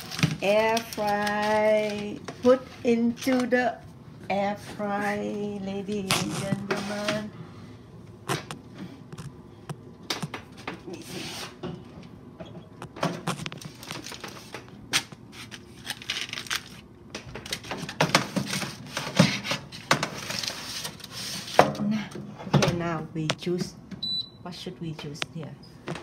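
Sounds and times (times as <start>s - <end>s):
aluminium foil crinkling: 0.0s - 3.6s, 13.2s - 21.6s.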